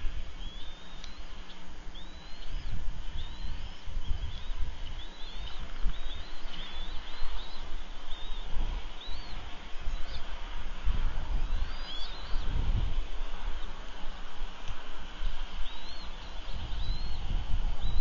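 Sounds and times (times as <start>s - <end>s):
low rumbling noise: 0.0s - 18.0s
bird chirping: 0.4s - 10.3s, 11.5s - 12.6s, 15.6s - 18.0s.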